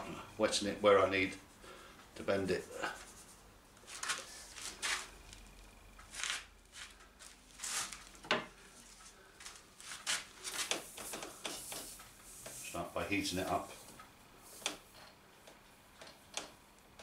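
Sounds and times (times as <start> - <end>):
wood strip rustling: 2.8 - 12.8.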